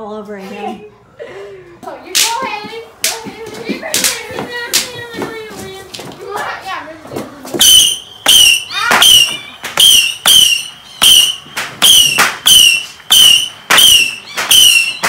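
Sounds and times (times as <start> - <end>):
firework whistle: 7.6 - 15.0
firework cracks: 11.2 - 15.0.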